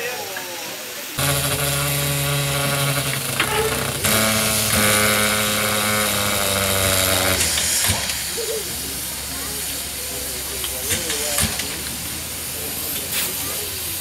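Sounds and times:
steam locomotive whistle blast: 1.2 - 8.8.

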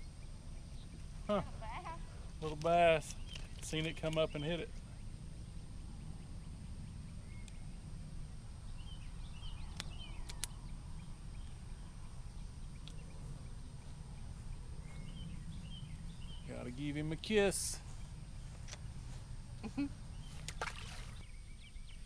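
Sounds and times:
small birds chirping: 0.0 - 22.0
low rumble: 4.8 - 20.5
sharp clicks: 9.7 - 10.6.

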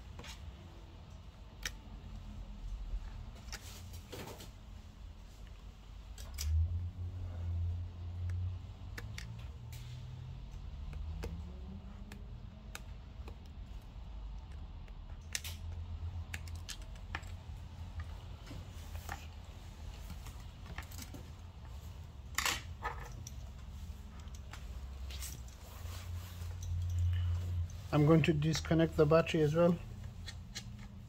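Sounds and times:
small tools clicking on screws: 14.4 - 17.4.

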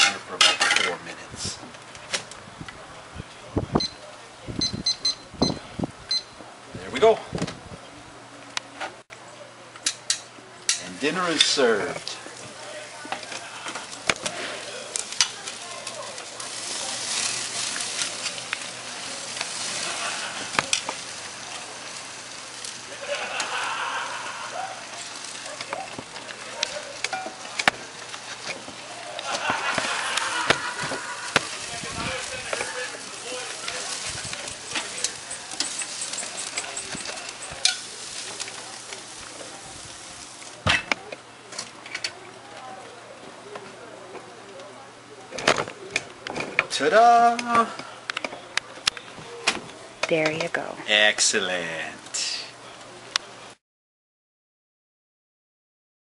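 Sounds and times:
vegetables sizzling on grill: 0.0 - 7.2, 9.8 - 53.6
metal tongs clicking and scraping: 24.9 - 28.6, 33.7 - 38.6.

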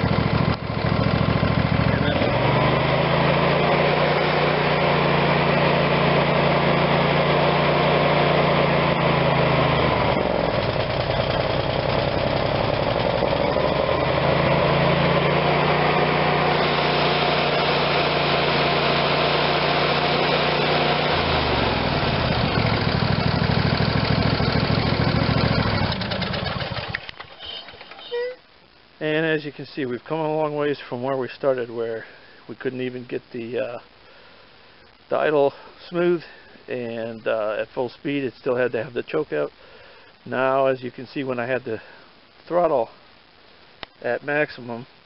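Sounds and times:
engine running at high throttle: 0.0 - 27.6.

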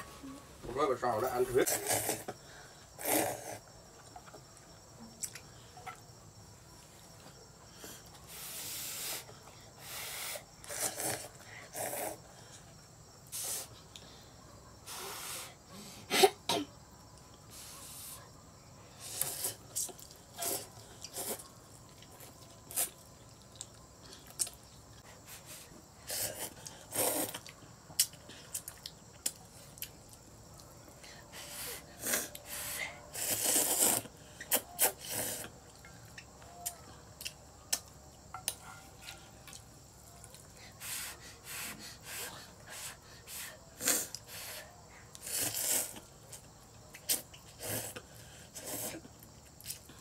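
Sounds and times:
noodles being slurped: 26.1 - 27.5, 33.1 - 35.5, 45.2 - 46.1.

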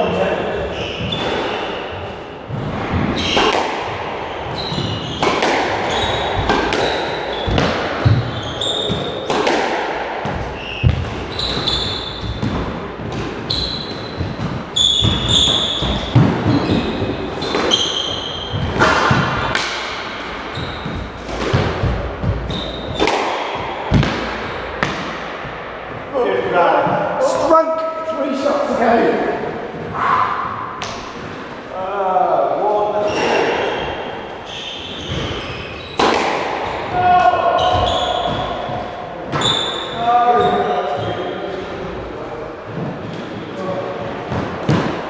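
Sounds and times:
squash ball hitting rackets and walls: 0.0 - 26.1, 29.4 - 31.7, 33.0 - 45.0
shoes squeaking: 0.6 - 3.6, 4.2 - 9.5, 10.5 - 19.6, 20.4 - 23.2, 33.0 - 41.6.

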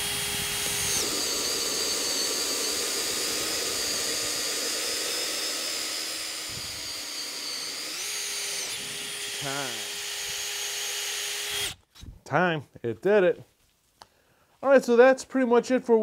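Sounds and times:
drill motor whine: 0.0 - 11.8.

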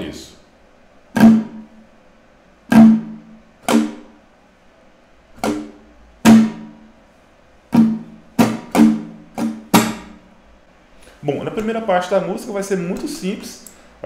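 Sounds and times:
acoustic guitar strums: 1.1 - 1.9, 2.6 - 4.2, 5.3 - 7.0, 7.6 - 10.4.

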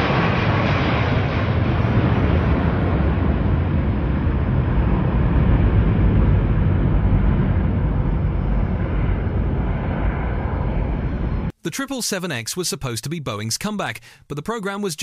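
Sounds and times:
jet engines rumbling: 0.0 - 11.6.

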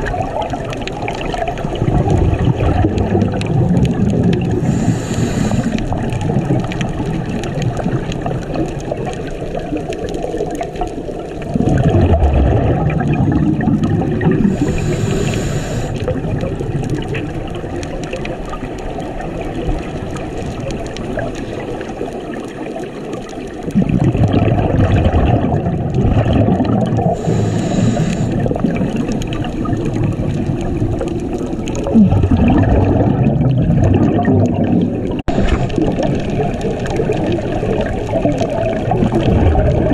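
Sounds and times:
exhaled bubbles rumbling: 0.0 - 39.9
underwater water noise: 0.0 - 39.9
diver breathing through regulator: 4.5 - 6.0, 14.4 - 16.1, 27.1 - 28.6.

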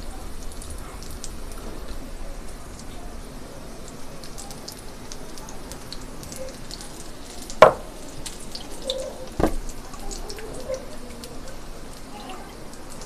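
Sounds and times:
deep-frying sizzle with pops: 0.0 - 13.0
sharp knocks: 7.6 - 7.9.

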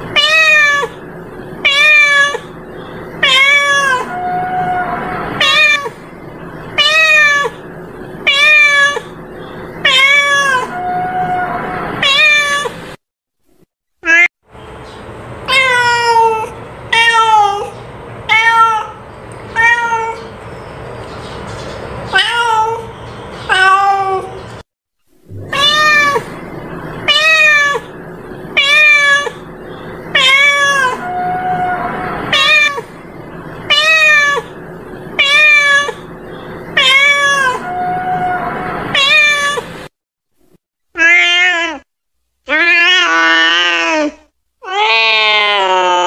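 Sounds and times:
cat meowing: 0.1 - 1.0, 1.6 - 2.5, 3.2 - 6.0, 6.8 - 7.6, 8.2 - 9.2, 9.8 - 12.8, 15.5 - 20.3, 22.1 - 22.9, 23.5 - 24.4, 25.4 - 26.4, 27.0 - 28.0, 28.6 - 29.5, 30.1 - 32.9, 33.7 - 34.6, 35.2 - 36.0, 36.7 - 39.7, 41.0 - 41.8.

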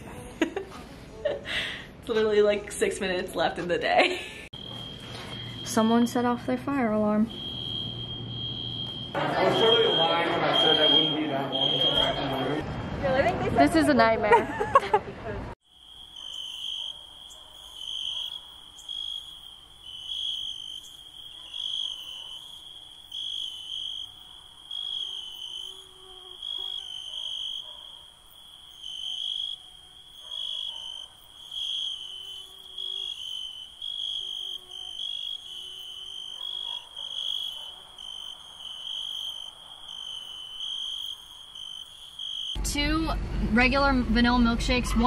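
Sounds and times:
high insect calls: 4.6 - 12.5, 15.6 - 42.6
crickets chirping: 4.6 - 12.6, 15.6 - 42.6.

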